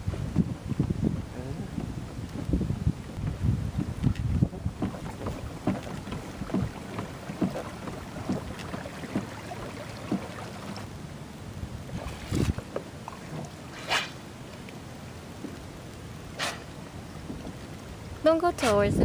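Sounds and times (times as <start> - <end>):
wind on microphone: 0.0 - 10.8, 11.5 - 14.2, 15.4 - 19.0
water lapping against kayak hull: 0.0 - 19.0
hissing splashes: 4.6 - 11.0, 11.9 - 14.4, 16.2 - 19.0.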